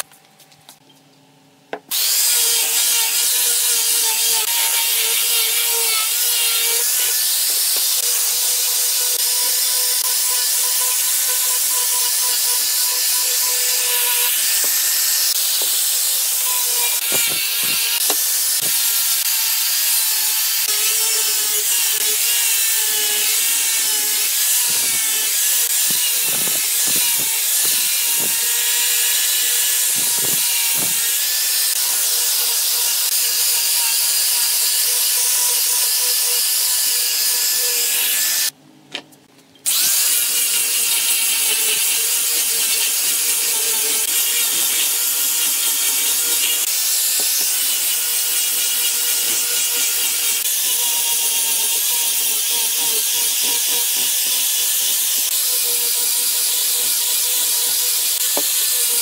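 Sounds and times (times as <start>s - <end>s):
angle grinder motor whine: 1.9s - 38.6s, 39.7s - 59.0s
sanding disc hissing on wood: 3.6s - 33.6s.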